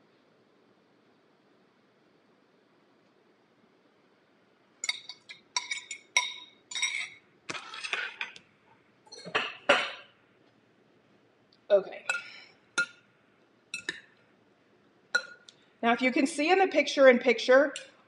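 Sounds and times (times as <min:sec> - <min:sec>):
metal spoon clinking on glass cup: 0:04.8 - 0:07.2, 0:12.1 - 0:13.0, 0:13.8 - 0:14.0, 0:15.2 - 0:15.4
utensils and dishes clattering: 0:04.8 - 0:08.4, 0:09.1 - 0:10.0.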